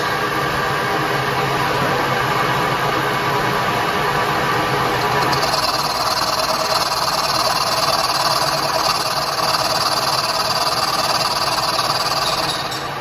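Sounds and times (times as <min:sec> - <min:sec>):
milling machine whirring: 0:04.5 - 0:13.0.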